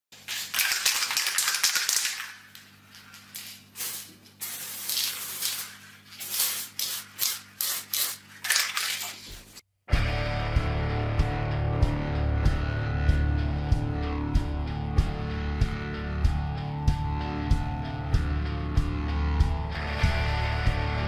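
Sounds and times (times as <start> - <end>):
aerosol spray can hissing: 3.3 - 8.8
music: 9.9 - 21.0.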